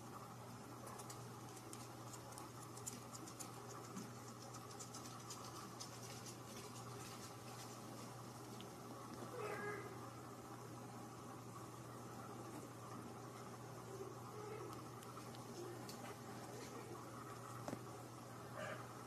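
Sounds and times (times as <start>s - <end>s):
steady low hum: 0.0s - 19.0s
light scratching and ticking: 0.8s - 9.3s.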